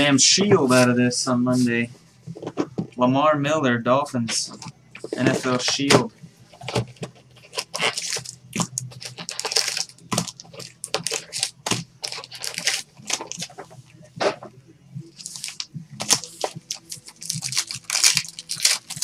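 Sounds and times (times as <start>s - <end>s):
cardboard and foil crinkling: 7.4s - 13.6s, 15.2s - 19.0s.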